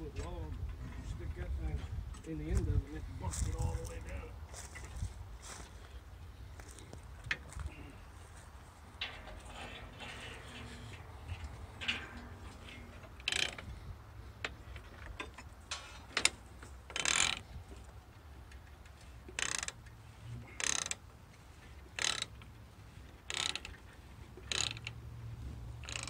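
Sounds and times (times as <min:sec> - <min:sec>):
ratchet lever rasping: 0:09.0 - 0:13.7, 0:14.4 - 0:17.4, 0:18.6 - 0:21.0, 0:21.9 - 0:22.5, 0:23.2 - 0:25.0, 0:25.8 - 0:26.0.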